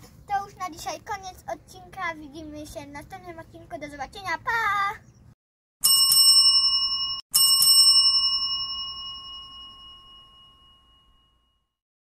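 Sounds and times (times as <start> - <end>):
bell ringing with high tone: 5.8 - 11.8.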